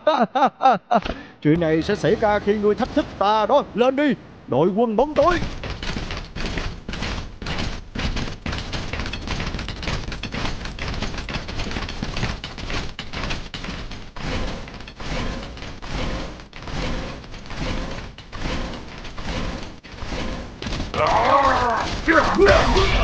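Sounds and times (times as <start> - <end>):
robot legs clanking and thudding: 5.0 - 23.0.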